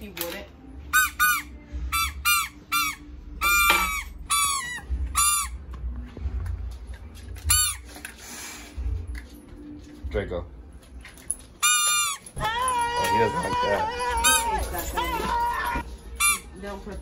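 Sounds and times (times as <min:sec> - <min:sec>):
handheld noisemaker squeaking: 0:11.6 - 0:16.5.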